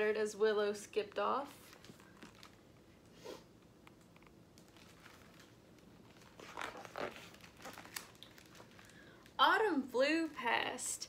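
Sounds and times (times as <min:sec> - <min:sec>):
page of a book turning: 0:04.6 - 0:09.0.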